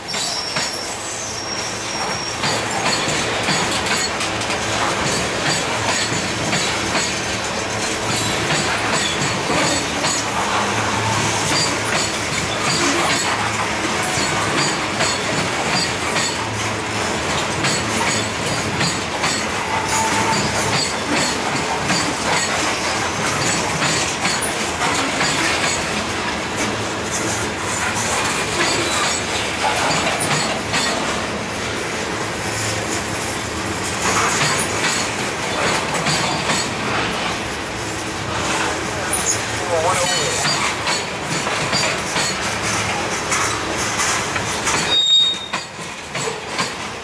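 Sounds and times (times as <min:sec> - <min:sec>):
freight train wheels rumbling: 0:00.0 - 0:47.0
high-pitched wheel squeal: 0:00.1 - 0:02.6, 0:19.7 - 0:20.9, 0:44.8 - 0:45.6
wheels clicking over rail joints: 0:02.0 - 0:10.6, 0:11.5 - 0:31.2, 0:33.8 - 0:37.3, 0:38.5 - 0:47.0.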